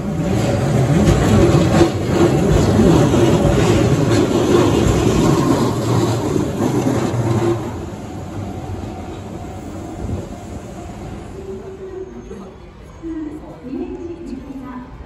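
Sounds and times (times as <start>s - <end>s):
train wheels rumbling and clicking: 0.0s - 11.4s.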